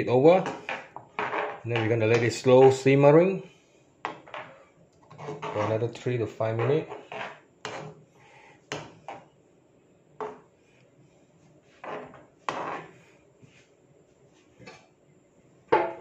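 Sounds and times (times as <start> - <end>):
metal spoon scraping frying pan: 5.1 - 8.0, 11.8 - 13.0.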